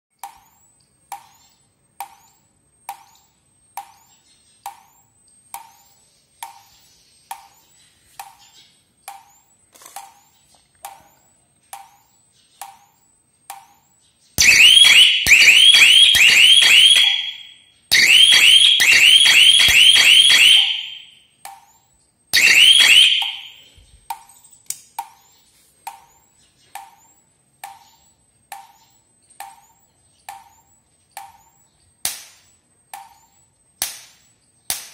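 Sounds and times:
electric fence energizer ticking: 0:09.0 - 0:21.8
warbling electronic alarm siren: 0:14.4 - 0:21.2, 0:22.4 - 0:23.7.

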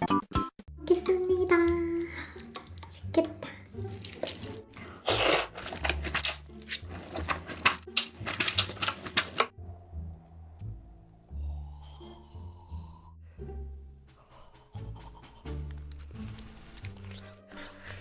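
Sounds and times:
person slurping noodles: 0:03.6 - 0:09.5
clicking mouth sounds: 0:14.5 - 0:16.2.

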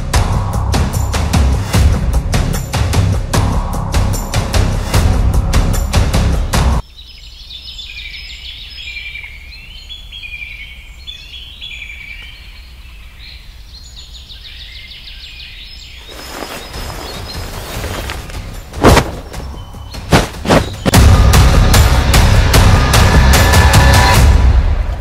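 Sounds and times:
music: 0:00.0 - 0:06.8, 0:16.3 - 0:25.0
birds chirping and singing: 0:06.4 - 0:21.0.

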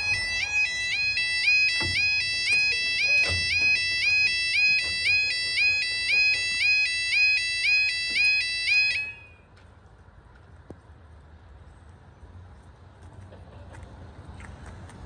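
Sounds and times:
level crossing yodel alarm: 0:00.0 - 0:09.5.

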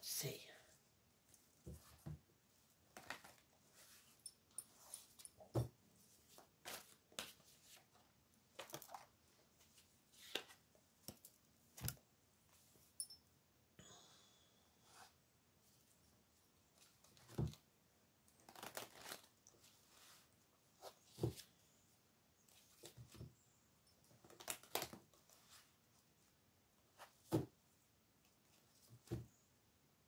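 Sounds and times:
cards being shuffled: 0:02.9 - 0:03.4, 0:18.4 - 0:19.4.

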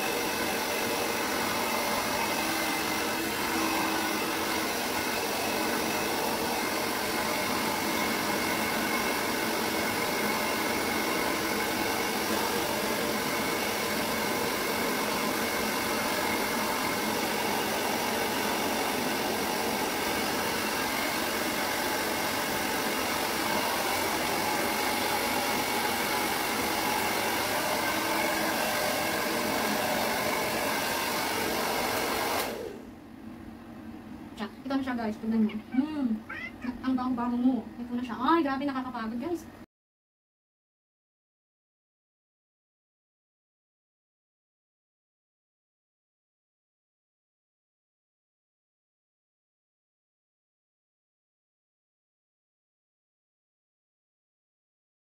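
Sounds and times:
hair dryer blowing: 0:00.0 - 0:32.9.

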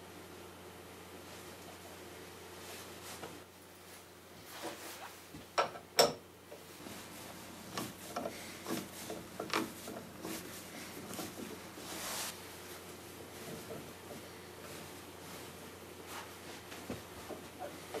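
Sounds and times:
light clicks and scrapes: 0:06.6 - 0:18.0.

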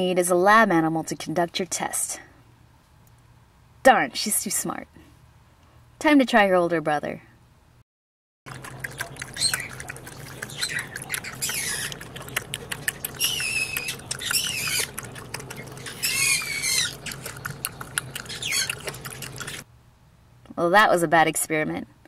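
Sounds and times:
dog lapping from a glass: 0:08.5 - 0:19.6
high wavering squeak: 0:15.8 - 0:17.0.

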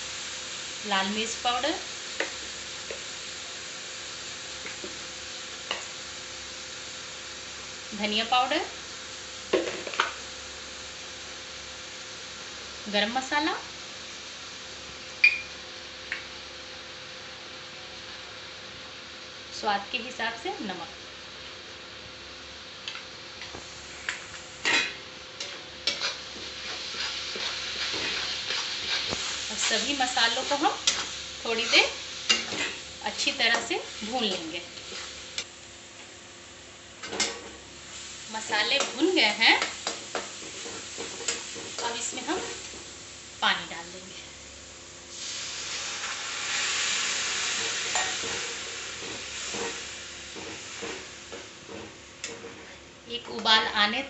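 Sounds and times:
paste sizzling in oil: 0:00.0 - 0:15.6, 0:22.9 - 0:35.9, 0:37.0 - 0:44.0, 0:44.6 - 0:53.9
metal spatula scraping pan: 0:24.7 - 0:32.8.

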